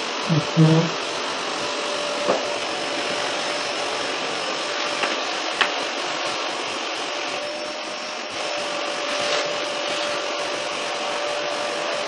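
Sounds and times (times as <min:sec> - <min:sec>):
vacuum cleaner running: 0:00.0 - 0:12.0.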